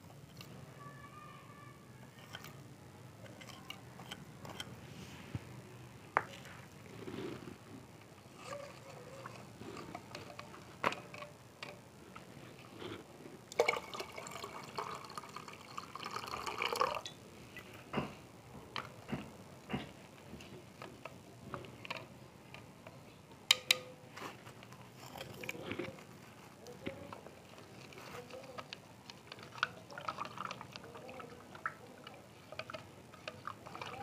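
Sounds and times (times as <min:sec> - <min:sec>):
water pouring into glass beaker: 0:13.5 - 0:17.2.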